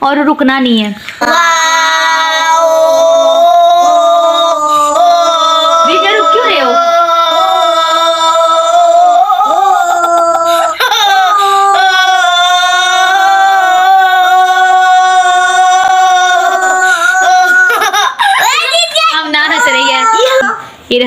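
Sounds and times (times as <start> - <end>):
girl holding long ooo note: 1.2 - 17.7.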